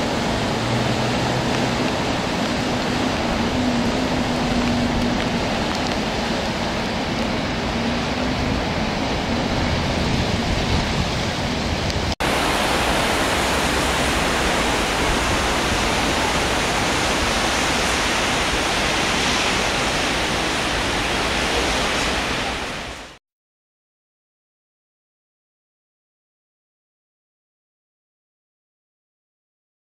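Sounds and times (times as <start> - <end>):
river rushing: 0.0 - 23.2.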